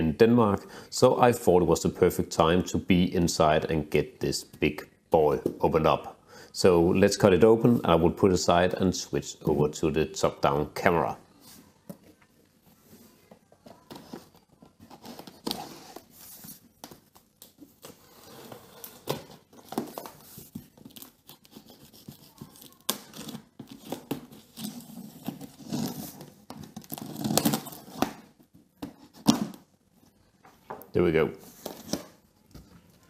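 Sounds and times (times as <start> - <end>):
knife slicing packing tape: 26.8 - 28.2.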